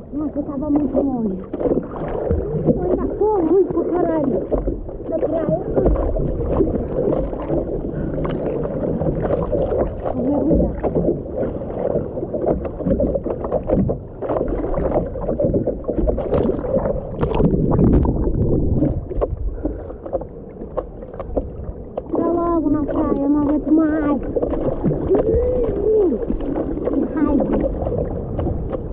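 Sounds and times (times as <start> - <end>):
hands paddling water splashes: 0.0 - 28.9
water sloshing over surfboard: 0.0 - 28.9.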